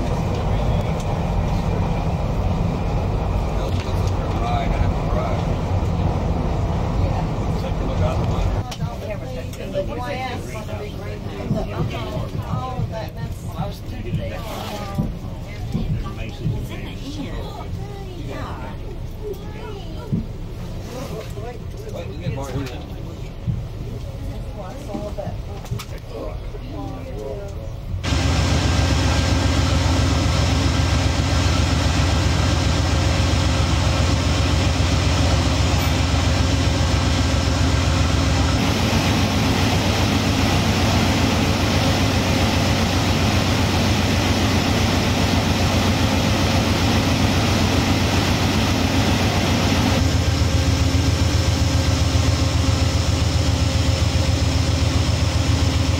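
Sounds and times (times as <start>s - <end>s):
locomotive engine idling: 0.0s - 14.4s, 27.6s - 55.9s.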